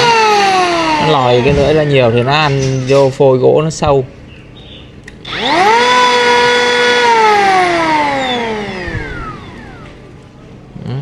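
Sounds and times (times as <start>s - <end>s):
electric hand planer whine: 0.0s - 2.5s, 5.2s - 10.0s.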